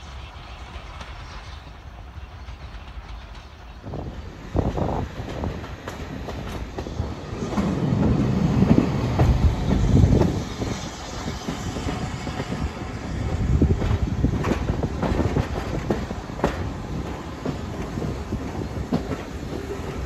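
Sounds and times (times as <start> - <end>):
train wheels rumbling over rail joints: 0.0 - 20.0.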